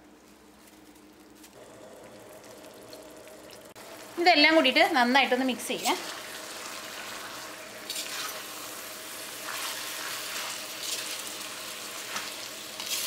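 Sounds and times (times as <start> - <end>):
chicken sizzling in a wok: 2.6 - 13.0
spatula scraping a pan: 7.0 - 8.6.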